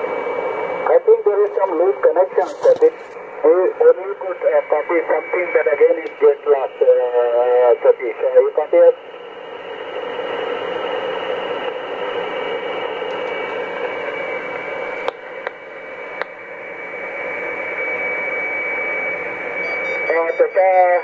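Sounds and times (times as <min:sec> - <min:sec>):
radio static hiss: 0:00.8 - 0:09.0, 0:20.1 - 0:21.0
steady whistle: 0:17.6 - 0:21.0.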